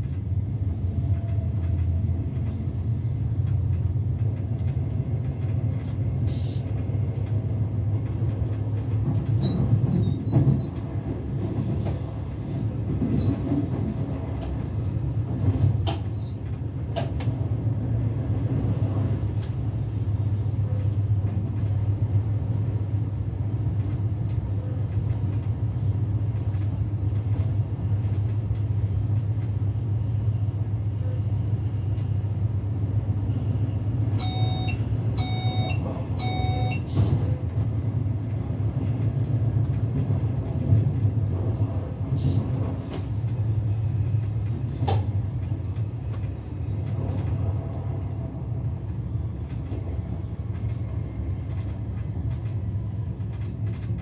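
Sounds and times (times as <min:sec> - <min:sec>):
train hum and rumble: 0:00.0 - 0:54.0
short electronic beeps: 0:34.2 - 0:36.9.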